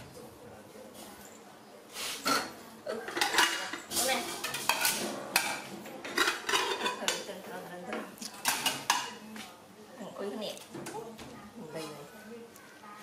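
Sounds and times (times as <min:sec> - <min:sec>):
dishes and pans clattering: 0:02.2 - 0:09.2.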